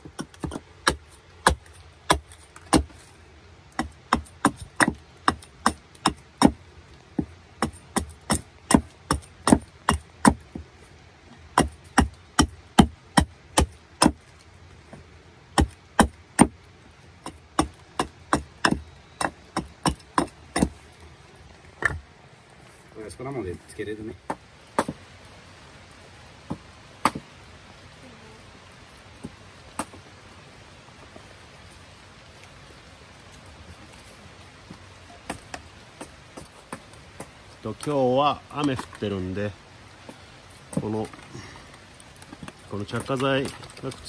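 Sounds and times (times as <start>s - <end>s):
wood being struck and split: 0.0s - 3.1s, 3.7s - 10.7s, 11.5s - 14.3s, 14.9s - 16.6s, 17.2s - 20.9s, 21.8s - 22.0s, 24.2s - 25.0s, 26.4s - 27.3s, 29.2s - 30.1s, 35.1s - 37.9s.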